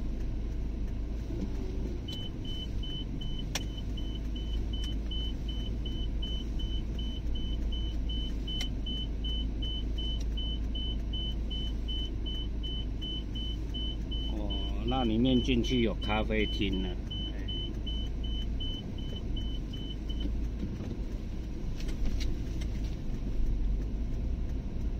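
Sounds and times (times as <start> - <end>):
car driving rumble from inside: 0.0 - 24.9
car warning beeps: 1.9 - 20.5.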